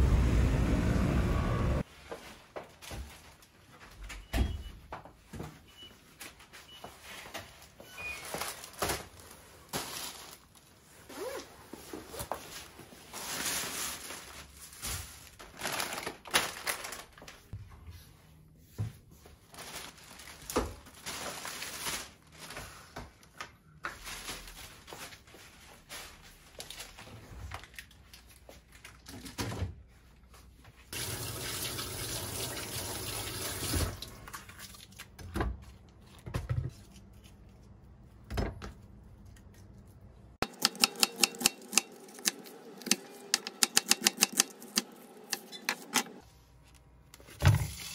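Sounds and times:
plastic bag rustling: 8.2 - 17.6, 19.4 - 22.9, 24.0 - 29.1
knocks and clicks: 40.4 - 46.2.

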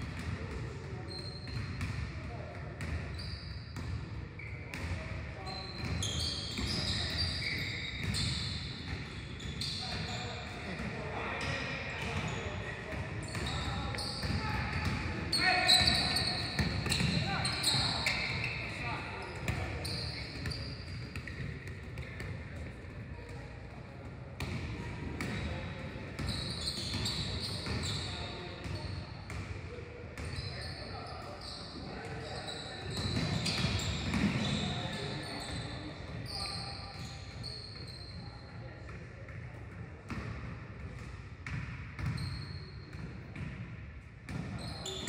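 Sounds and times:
sneakers squeaking: 0.1 - 23.4, 24.4 - 29.5, 30.2 - 38.5, 41.5 - 43.6, 44.3 - 45.0
players' voices echoing: 4.6 - 37.1
basketballs bouncing on wooden floor: 24.4 - 25.5, 32.9 - 34.6, 41.4 - 42.2.

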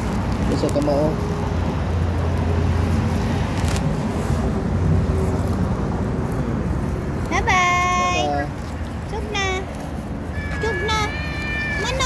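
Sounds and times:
road traffic rumble: 0.0 - 12.0.

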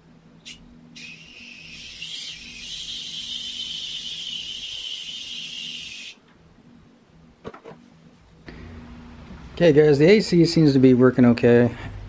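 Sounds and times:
pressurised gas hissing: 0.4 - 6.2.

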